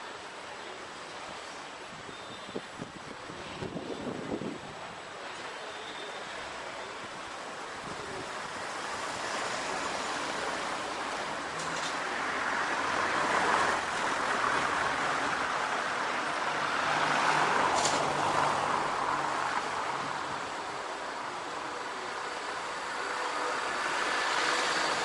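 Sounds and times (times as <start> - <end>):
cars passing: 7.8 - 25.0.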